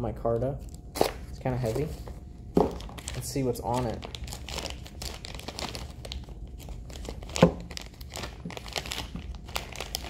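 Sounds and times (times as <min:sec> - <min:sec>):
plastic bag crinkling: 0:02.6 - 0:10.0.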